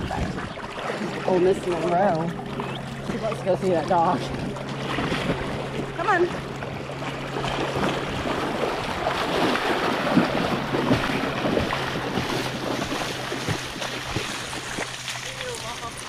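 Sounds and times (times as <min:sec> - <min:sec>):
wind on microphone: 0:00.0 - 0:01.2
splashing through shallow water: 0:00.0 - 0:16.0
steady low hum: 0:00.0 - 0:16.0.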